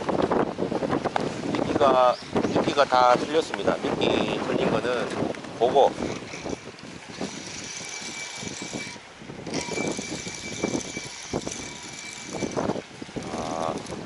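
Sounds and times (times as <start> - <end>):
fishing reel whirring: 6.0 - 14.0.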